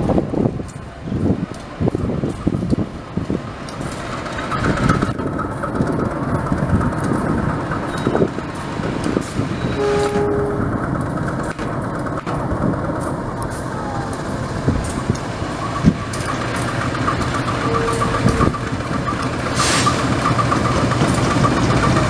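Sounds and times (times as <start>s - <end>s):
locomotive engine rumble: 0.0s - 22.0s
short tone: 9.6s - 10.7s, 17.6s - 18.6s.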